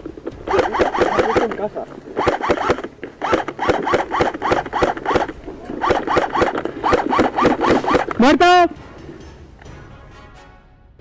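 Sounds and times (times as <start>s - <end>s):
airsoft rifle motor whirring: 0.4s - 8.2s.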